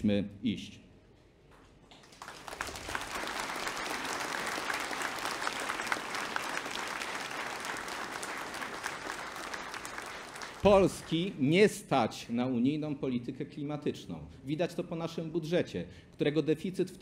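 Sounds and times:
audience applauding: 1.9 - 11.4.

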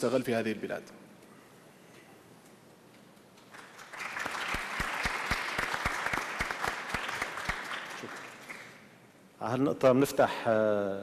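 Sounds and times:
audience applauding: 3.5 - 8.8.

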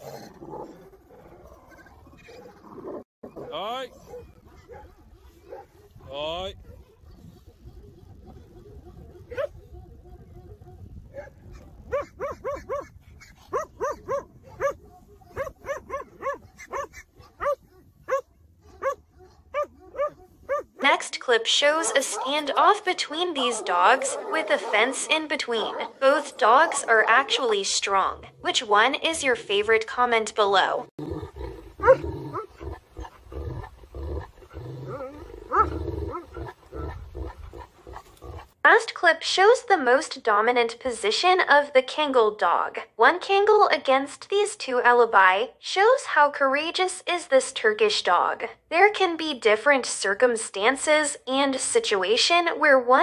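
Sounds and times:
dogs growling: 0.0 - 20.8, 21.6 - 29.1, 30.8 - 38.6
dog barking: 3.3 - 6.0, 8.6 - 9.8, 11.1 - 12.9, 13.5 - 20.8, 31.8 - 33.2, 35.5 - 36.3.

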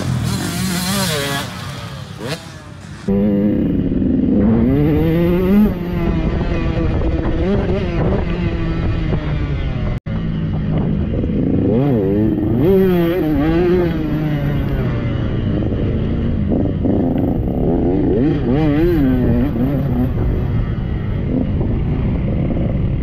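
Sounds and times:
dirt bike engine revving: 0.0 - 23.0.

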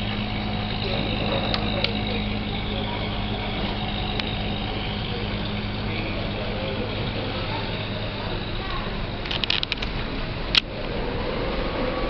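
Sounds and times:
steady mechanical hum: 0.0 - 12.0
sharp light clicks: 8.7 - 10.7.

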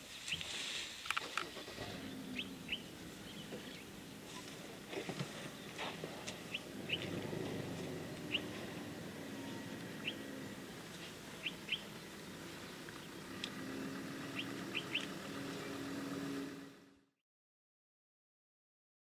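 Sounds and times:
small birds chirping: 1.8 - 15.9.

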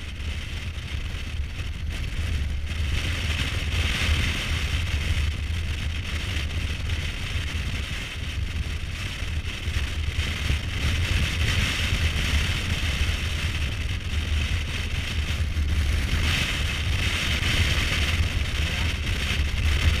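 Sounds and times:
motorcycle engine rumbling: 0.0 - 20.0
wind rushing over microphone: 0.0 - 20.0.

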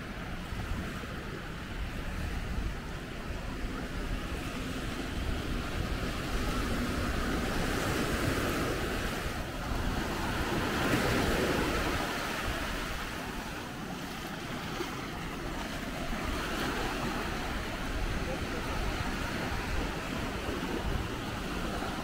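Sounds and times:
sea waves breaking on a beach: 0.0 - 22.0
wind rumbling on microphone: 0.0 - 22.0.

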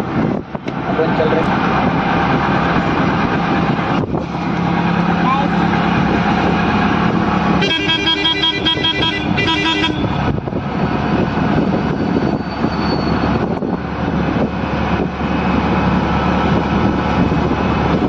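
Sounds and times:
auto-rickshaw engine running: 0.0 - 18.0
road and wind noise: 0.0 - 18.0
vehicle horn: 7.6 - 10.2.

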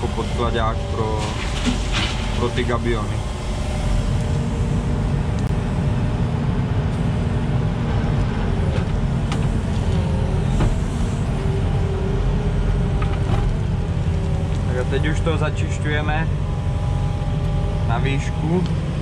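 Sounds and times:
diesel engine running: 0.0 - 19.0.

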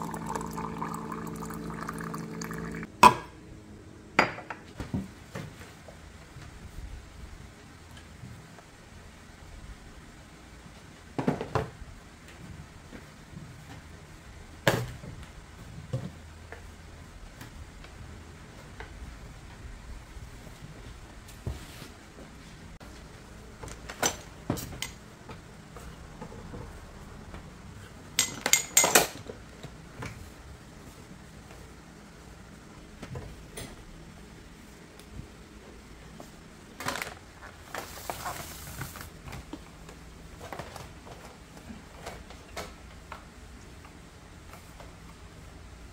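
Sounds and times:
low steady hum: 0.0 - 4.0.

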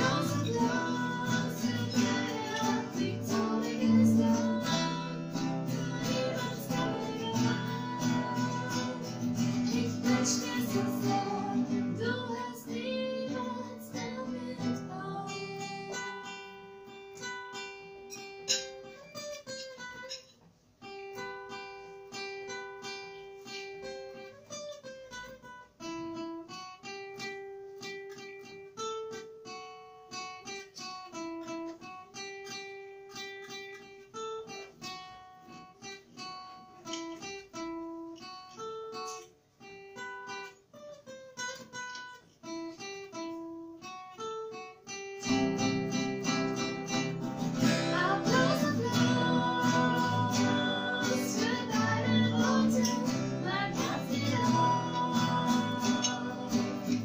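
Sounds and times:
woman singing: 0.0 - 16.5, 47.5 - 57.0
acoustic guitars: 0.0 - 57.0.

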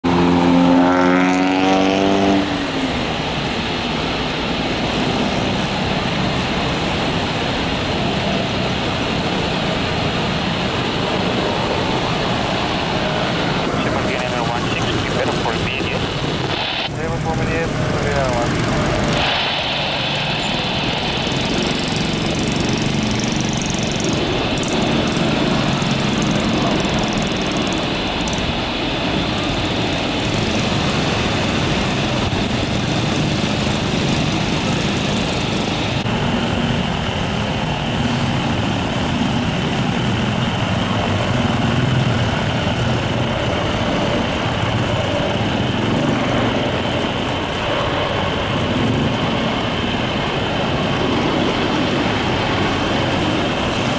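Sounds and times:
jet engine airliners landing: 2.4 - 53.9.

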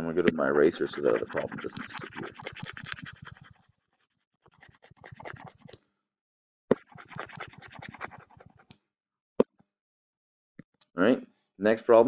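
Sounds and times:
stylus scrubbing on pen tablet: 0.4 - 5.8, 6.7 - 8.8.

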